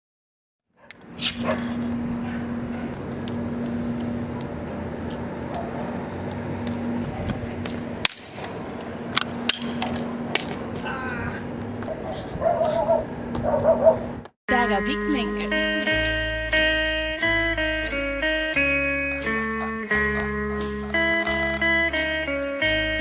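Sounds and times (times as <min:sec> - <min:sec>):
low steady hum: 0:00.9 - 0:13.4
machetes clanging: 0:01.2 - 0:02.2, 0:08.0 - 0:10.6.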